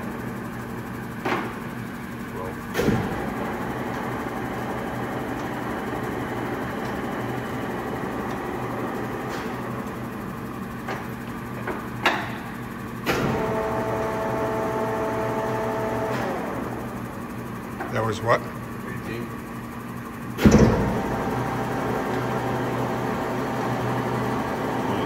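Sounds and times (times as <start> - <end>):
machine clunk: 2.7 - 4.1, 20.4 - 21.1
high machine whine: 12.9 - 25.0.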